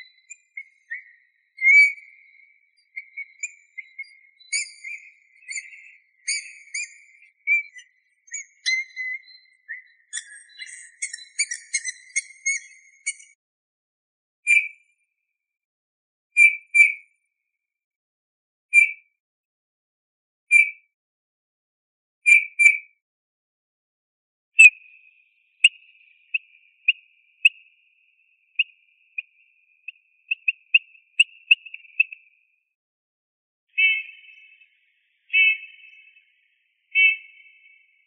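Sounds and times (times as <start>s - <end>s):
bird piping whistled calls: 0.0s - 13.4s, 14.5s - 14.7s, 16.4s - 16.9s, 20.5s - 20.7s, 24.6s - 25.0s, 25.6s - 27.8s, 28.5s - 32.3s, 33.7s - 36.2s, 36.9s - 38.0s.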